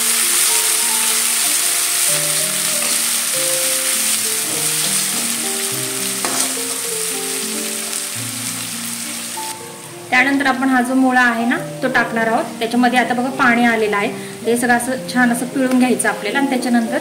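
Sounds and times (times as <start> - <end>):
soft background melody: 0.0 - 17.0
vegetables sizzling in hot oil: 0.0 - 17.0
spatula stirring in pan: 2.4 - 5.5, 6.1 - 6.6.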